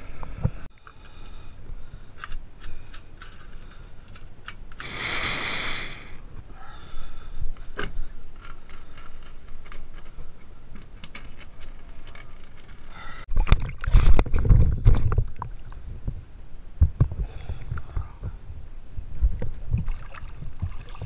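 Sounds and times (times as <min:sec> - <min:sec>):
water sloshing and splashing: 0:13.3 - 0:15.8, 0:19.2 - 0:21.0.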